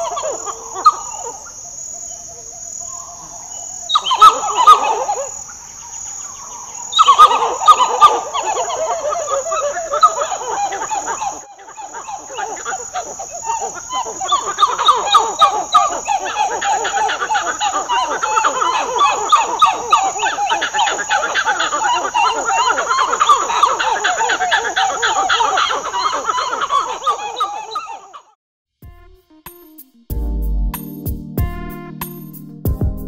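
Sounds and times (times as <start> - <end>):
monkeys gobbling calls: 0.0 - 1.6, 3.9 - 5.6, 6.4 - 28.4
insect drone: 0.0 - 27.7.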